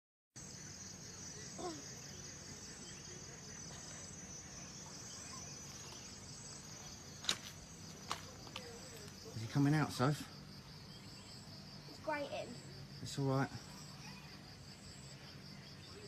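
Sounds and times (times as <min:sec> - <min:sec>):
insects chirring: 0:00.4 - 0:16.0
low outdoor hiss: 0:00.4 - 0:16.0.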